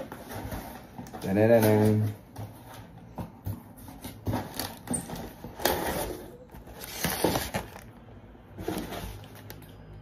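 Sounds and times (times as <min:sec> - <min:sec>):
packaging scraping and crinkling: 0:04.3 - 0:09.8.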